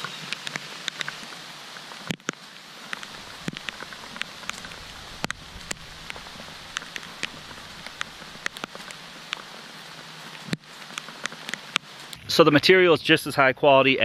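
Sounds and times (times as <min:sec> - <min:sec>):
raindrops ticking on camera: 0:00.0 - 0:12.2
steady rain falling: 0:00.0 - 0:12.8.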